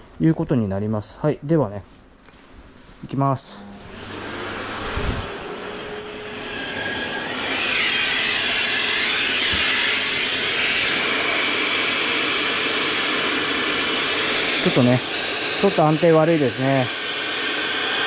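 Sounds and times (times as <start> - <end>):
dust extractor rushing hiss: 6.4 - 18.0.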